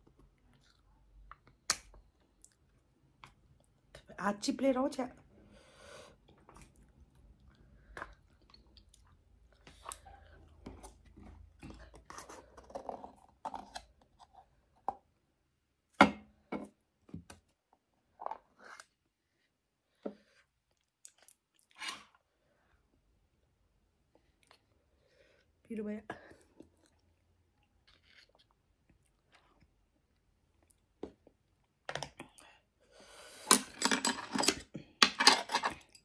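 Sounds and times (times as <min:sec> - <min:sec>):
person chewing food: 0:00.0 - 0:03.9, 0:06.2 - 0:14.6, 0:19.9 - 0:22.2, 0:24.1 - 0:25.5, 0:26.4 - 0:32.5.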